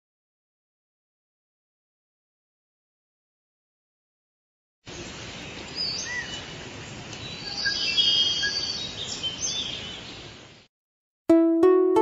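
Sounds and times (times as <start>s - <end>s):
steady background hiss: 4.9s - 10.6s
birds chirping and whistling: 7.2s - 10.2s.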